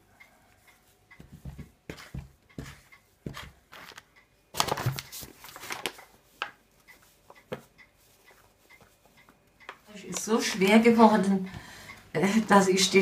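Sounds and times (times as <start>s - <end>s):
wooden spoon scraping dough in bowl: 1.8s - 3.6s
paper bag crinkling: 4.6s - 6.0s.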